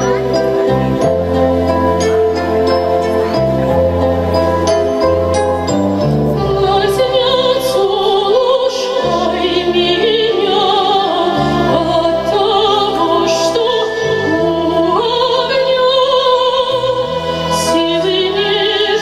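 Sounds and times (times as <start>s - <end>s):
sustained musical accompaniment: 0.0s - 19.0s
operatic singing voice: 6.4s - 19.0s.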